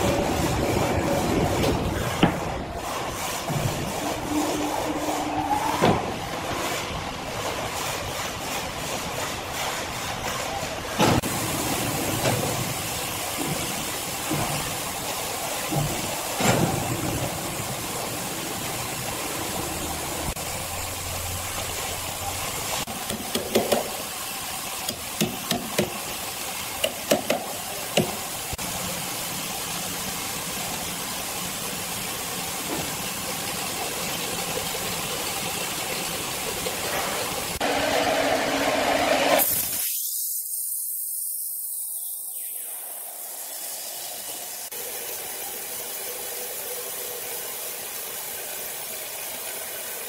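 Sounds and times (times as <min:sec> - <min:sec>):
sawmill machinery noise: 0:00.0 - 0:39.8.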